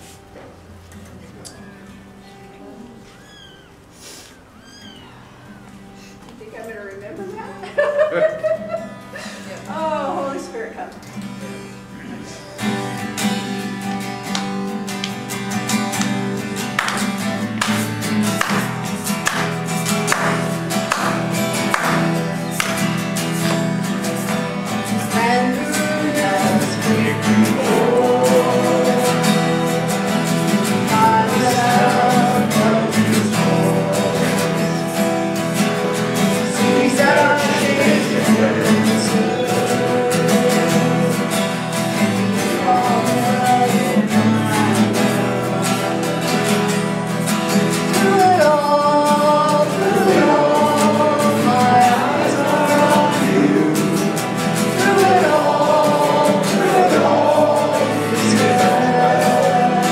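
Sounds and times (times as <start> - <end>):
acoustic guitars strumming: 0.0 - 59.9
people singing: 18.4 - 59.9.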